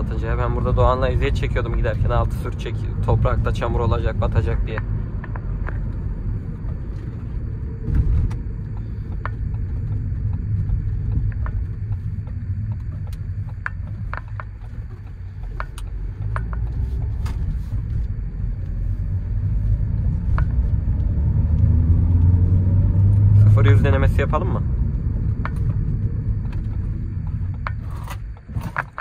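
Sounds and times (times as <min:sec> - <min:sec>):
road and engine rumble: 0:00.0 - 0:29.0
small clicks and ticks: 0:04.3 - 0:18.2.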